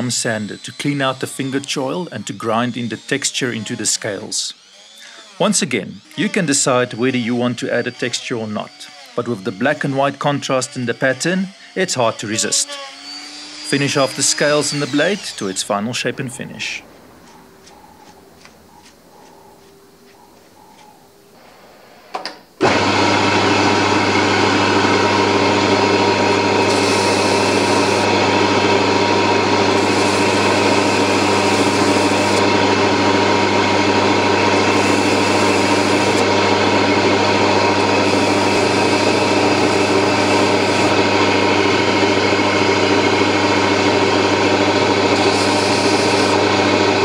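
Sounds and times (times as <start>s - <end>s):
belt grinder running: 0.0s - 19.8s, 22.6s - 47.0s
knife handle sanding on belt: 17.2s - 21.0s.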